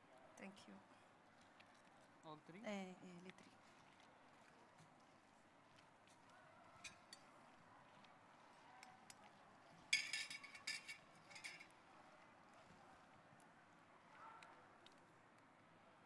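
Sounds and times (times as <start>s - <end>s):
clicks and clinks in a metal bowl: 6.8s - 7.4s, 8.8s - 11.8s.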